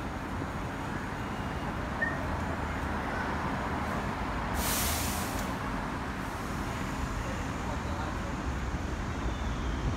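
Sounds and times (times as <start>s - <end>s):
city traffic rumble: 0.0s - 9.9s
sharp hiss: 4.5s - 5.6s.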